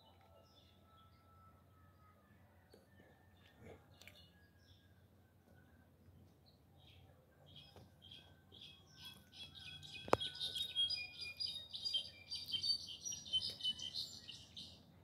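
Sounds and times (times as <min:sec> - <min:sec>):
bird singing high clear notes: 0:07.5 - 0:14.6.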